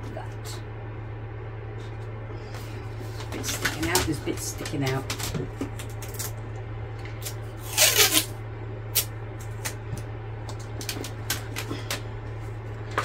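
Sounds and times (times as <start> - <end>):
steady low hum: 0.0 - 13.0
plastic film crinkling and rustling: 3.1 - 6.4.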